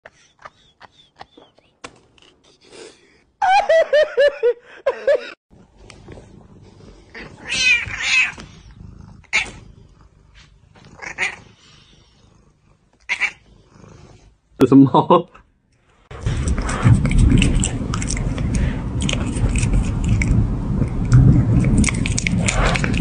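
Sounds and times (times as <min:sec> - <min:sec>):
cats meowing: 0:07.1 - 0:08.6, 0:10.9 - 0:11.6, 0:13.0 - 0:13.6.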